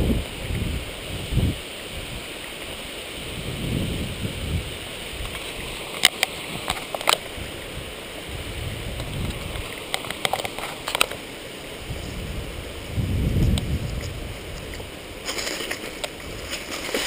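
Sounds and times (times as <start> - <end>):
wind buffeting microphone: 0.0 - 2.3, 3.2 - 17.0
bicycle clicks and rattles: 9.0 - 11.2
grass brushing bicycle: 13.4 - 17.0.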